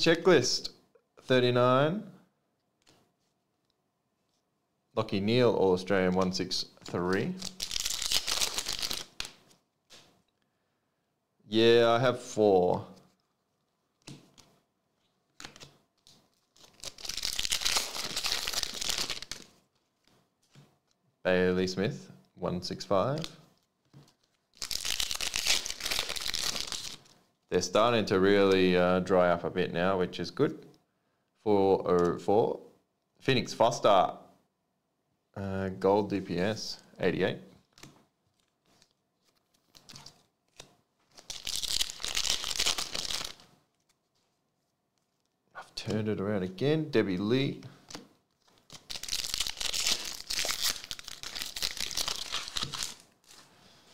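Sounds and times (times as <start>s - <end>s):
cards rustling: 6.2s - 10.2s, 12.9s - 21.0s, 23.0s - 27.2s, 37.6s - 46.0s, 47.8s - 53.5s
foil wrapper crinkling and tearing: 7.4s - 9.4s, 16.4s - 19.6s, 24.1s - 27.2s, 38.3s - 44.0s, 48.3s - 53.5s.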